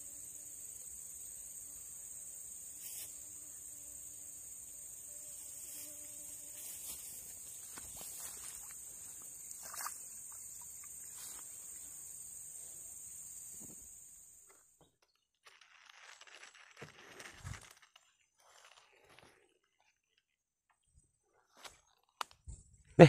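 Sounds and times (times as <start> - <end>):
high-pitched insect chorus: 0.0 - 14.6.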